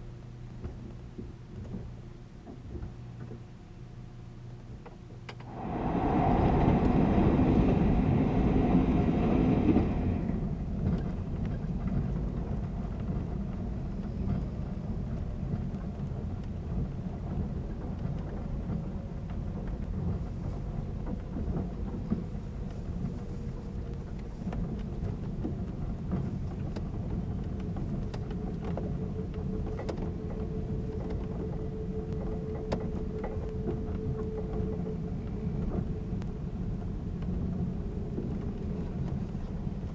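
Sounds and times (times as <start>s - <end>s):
train wheels rumbling on rails: 5.3s - 39.9s
harsh rush of noise: 5.4s - 10.8s
faint hum dropping in pitch: 5.4s - 11.5s.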